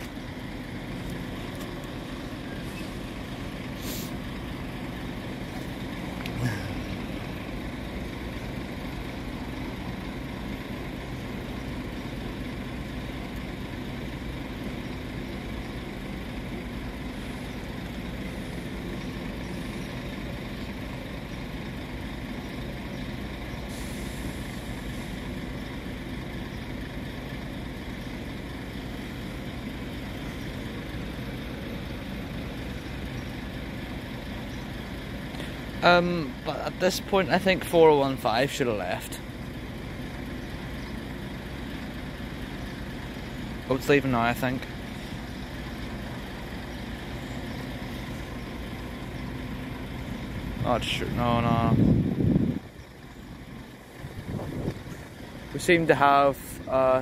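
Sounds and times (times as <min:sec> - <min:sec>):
diesel engines idling: 0:00.0 - 0:57.0
short hiss: 0:03.8 - 0:04.2.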